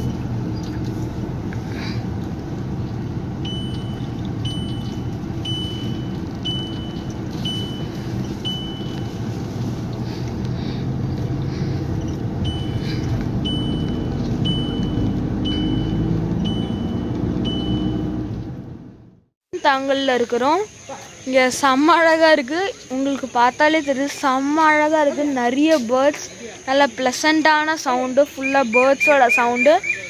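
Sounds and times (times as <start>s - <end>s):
car cabin road and engine noise: 0.0s - 30.0s.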